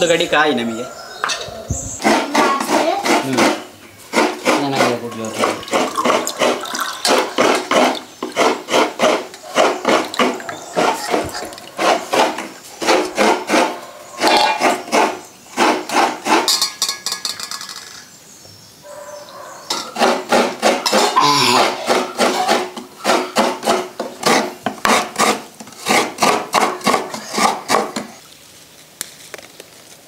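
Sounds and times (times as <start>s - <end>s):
rhythmic hand scraping: 2.0s - 16.5s, 20.0s - 28.0s.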